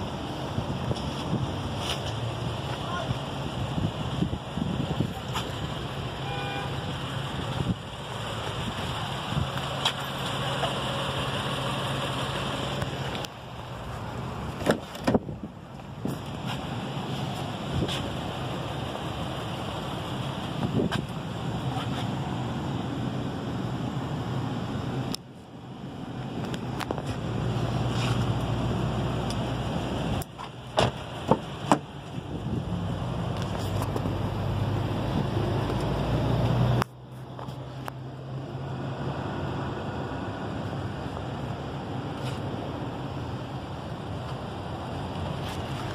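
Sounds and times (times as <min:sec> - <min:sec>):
vehicle engine idling: 0:00.0 - 0:45.9
car door handle and latch clicks: 0:14.6 - 0:15.2.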